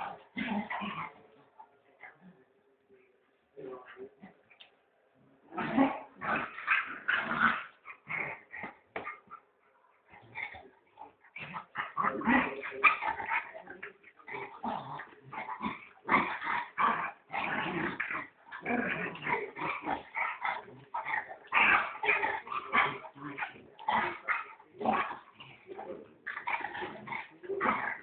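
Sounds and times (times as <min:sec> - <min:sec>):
dogs yipping and growling: 0:05.6 - 0:09.4, 0:10.0 - 0:28.0.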